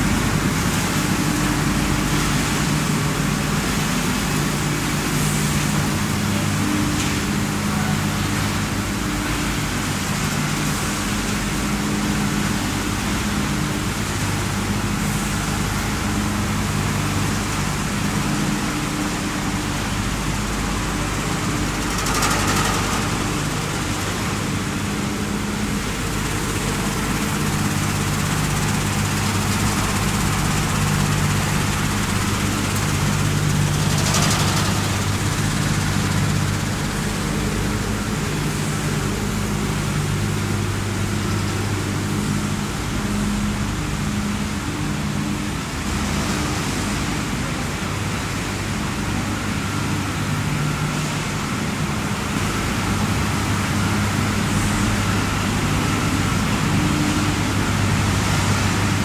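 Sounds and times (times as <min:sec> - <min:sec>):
factory machinery drone: 0:00.0 - 0:59.0
loud machinery rushes: 0:19.8 - 0:39.6.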